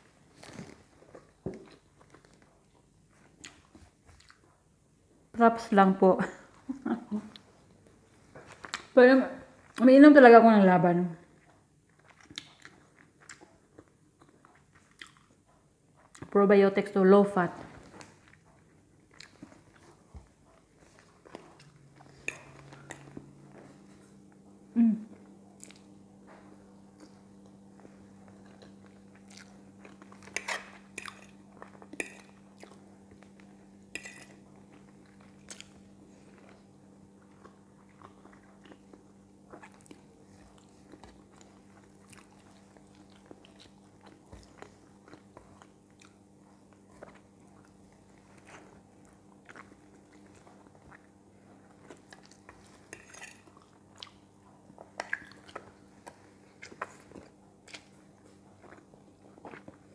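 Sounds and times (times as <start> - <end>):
person chewing food: 0.2 - 4.6, 6.6 - 9.0, 11.2 - 16.3, 17.7 - 59.9.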